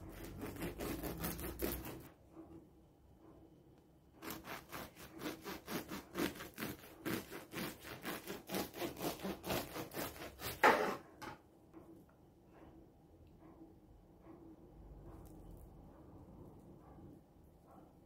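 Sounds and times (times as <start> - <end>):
bread knife sawing through loaf: 0.0 - 2.1, 4.2 - 11.1.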